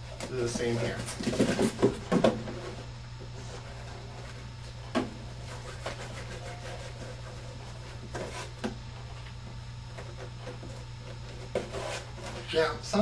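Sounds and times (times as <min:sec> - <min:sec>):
steady low hum: 0:00.0 - 0:13.0
cardboard knocking and rubbing: 0:00.9 - 0:02.8, 0:09.9 - 0:12.4.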